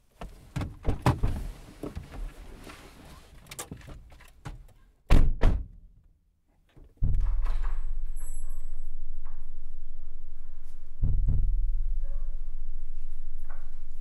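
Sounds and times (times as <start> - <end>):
steady low rumble: 7.0 - 14.0.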